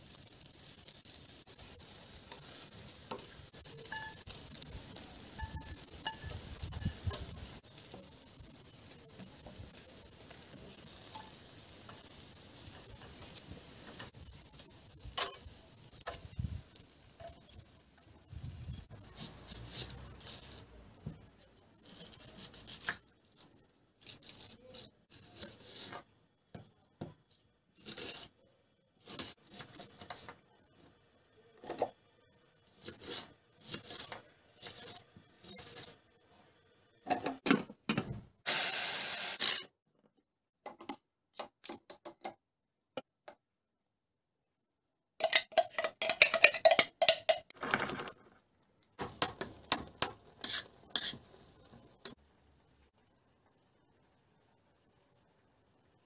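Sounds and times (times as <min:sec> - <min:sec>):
grill hissing: 0:00.0 - 0:21.2, 0:32.6 - 0:36.7, 0:38.5 - 0:39.6, 0:49.0 - 0:52.2
onion skin crackling and tearing: 0:21.8 - 0:23.4.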